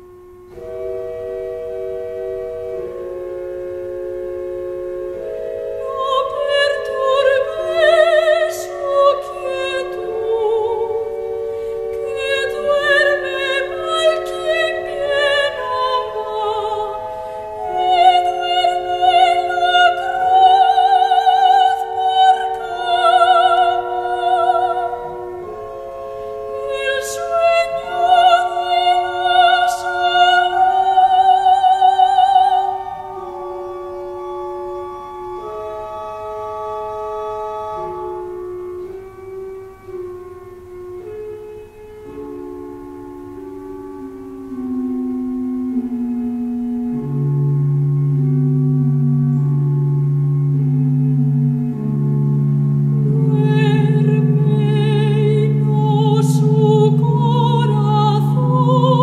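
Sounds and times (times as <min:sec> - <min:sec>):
choir singing: 0:05.8 - 0:11.1, 0:11.9 - 0:17.0, 0:26.6 - 0:33.2, 0:53.1 - 0:59.0.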